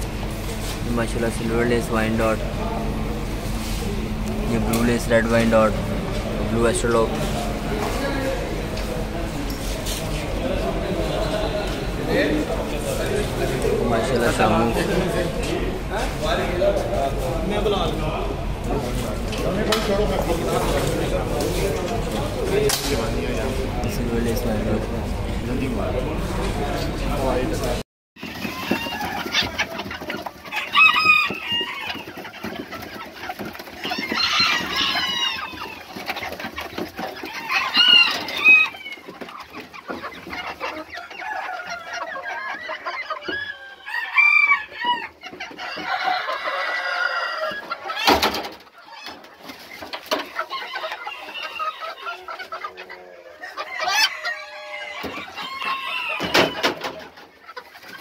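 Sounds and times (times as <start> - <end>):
chickens clucking: 0.0 - 58.0
rooster crowing: 30.5 - 32.1, 34.0 - 35.9, 37.4 - 39.1, 43.2 - 47.7, 50.5 - 52.1, 53.2 - 56.8.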